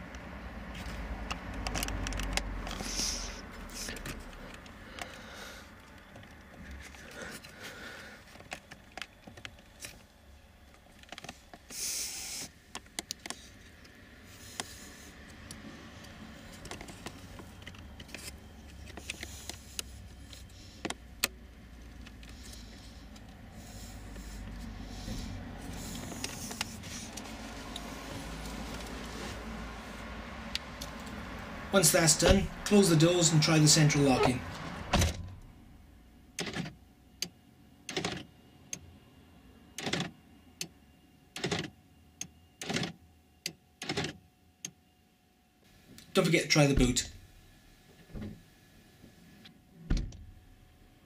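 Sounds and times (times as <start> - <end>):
plastic plugs clicking: 1.2 - 2.8.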